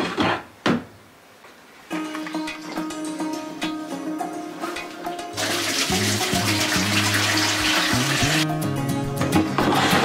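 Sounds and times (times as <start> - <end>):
plucked guitar-like notes: 1.9 - 9.8.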